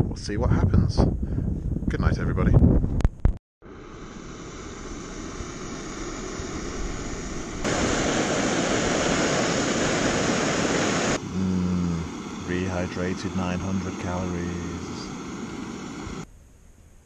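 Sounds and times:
camping stove burner hissing: 3.6s - 16.3s.

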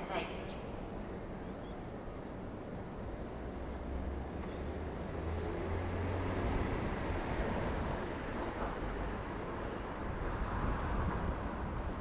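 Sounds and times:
electric train approaching: 0.0s - 12.0s.

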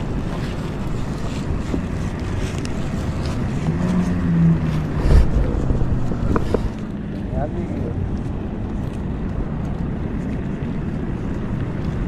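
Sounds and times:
wind buffeting microphone: 0.0s - 12.0s
low hum: 2.6s - 7.3s.

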